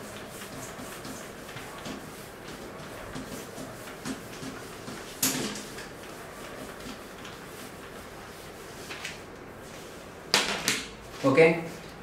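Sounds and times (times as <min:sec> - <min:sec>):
eraser wiping whiteboard: 0:00.0 - 0:10.2.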